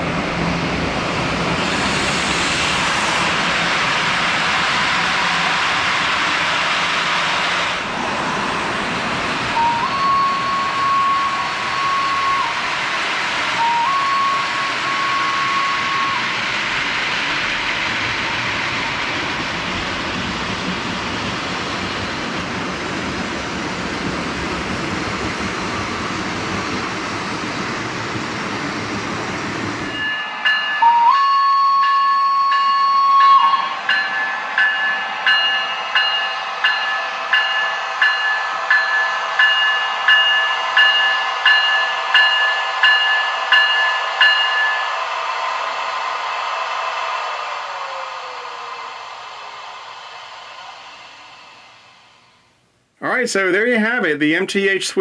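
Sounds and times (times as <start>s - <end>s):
model train rumbling on track: 0.0s - 52.4s
electronic train horn: 9.6s - 12.6s, 13.6s - 16.2s, 30.8s - 33.6s
steady high tones: 29.9s - 52.5s.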